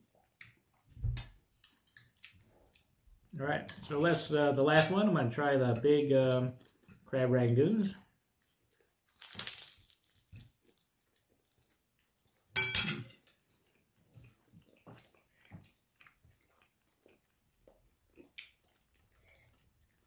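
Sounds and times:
chewing with clicks and smacks: 0:00.0 - 0:03.3, 0:10.1 - 0:12.5, 0:13.3 - 0:20.0
crisp crunch of fried food: 0:08.4 - 0:12.6.

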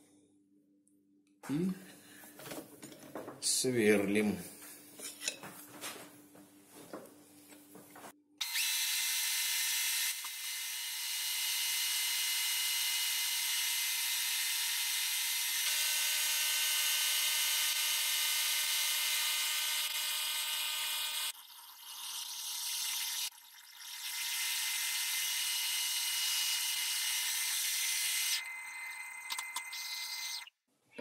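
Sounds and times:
high-pitched lathe whine: 0:22.1 - 0:30.5.

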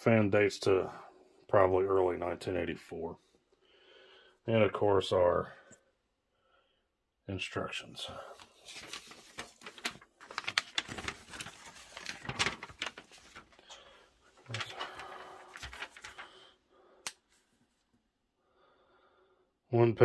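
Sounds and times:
paper crackling and rustling: 0:08.3 - 0:16.6.

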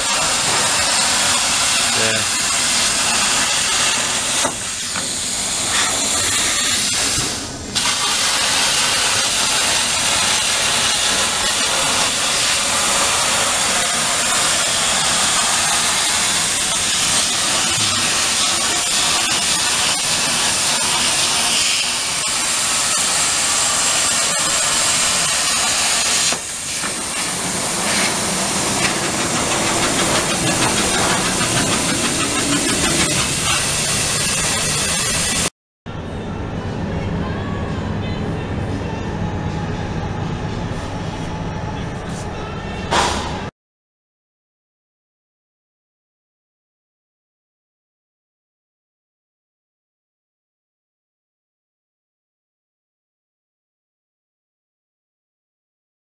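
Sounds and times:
plasma torch hissing: 0:00.0 - 0:35.5.

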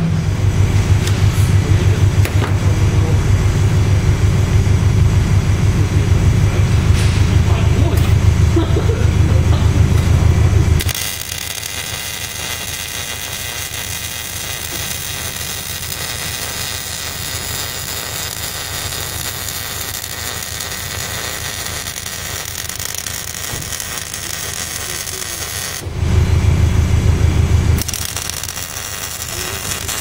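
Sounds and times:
welder arc crackling hiss: 0:10.8 - 0:25.9, 0:27.8 - 0:30.0.

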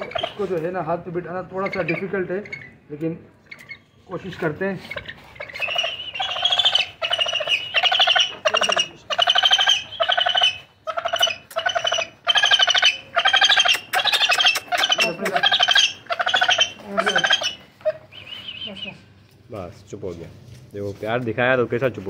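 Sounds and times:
vulture harsh rasping calls: 0:00.0 - 0:00.5, 0:04.8 - 0:19.0.

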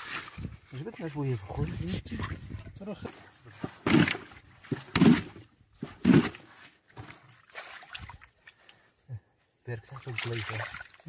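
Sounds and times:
hand splashing water: 0:07.0 - 0:08.6, 0:10.0 - 0:11.0
water dribbling: 0:09.8 - 0:11.0.

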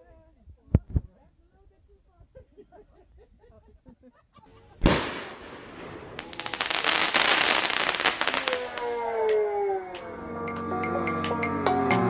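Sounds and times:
fireworks crackling: 0:04.7 - 0:09.0
firework bang: 0:04.8 - 0:08.9.

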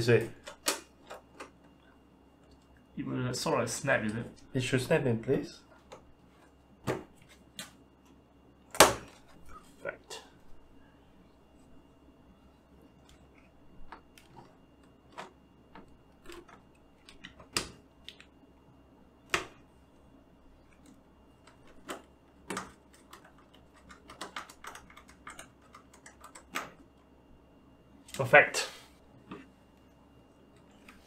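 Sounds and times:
computer parts clicking and tapping: 0:13.0 - 0:18.3, 0:20.7 - 0:27.1.

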